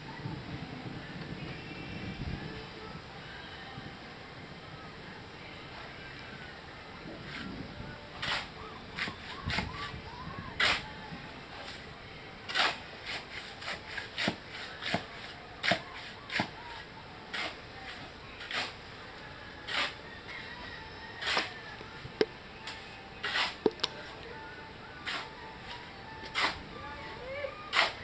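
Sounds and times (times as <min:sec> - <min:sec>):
shovel scraping mortar: 0:08.2 - 0:09.7, 0:12.5 - 0:16.5, 0:17.3 - 0:18.8, 0:19.7 - 0:20.0, 0:21.2 - 0:24.1, 0:25.0 - 0:26.6, 0:27.7 - 0:28.0
tool clicks: 0:23.6 - 0:24.0.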